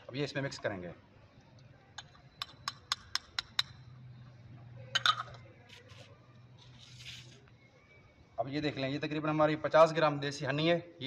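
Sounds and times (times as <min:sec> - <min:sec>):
metal spoon clinking on glass: 0:02.0 - 0:03.8, 0:04.9 - 0:05.4.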